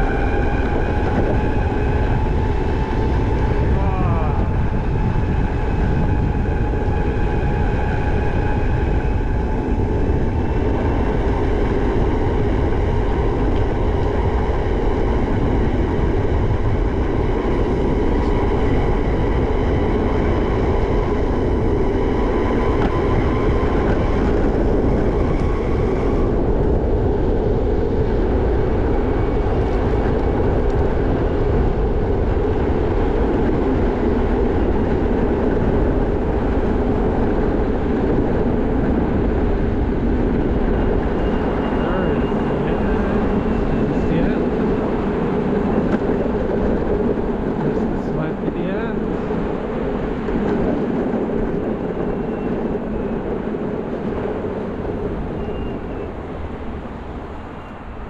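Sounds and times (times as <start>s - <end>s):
skateboard wheels rolling on pavement: 0.0s - 58.0s
wind rumble on camera: 0.0s - 58.0s
faint high whine: 40.8s - 44.5s.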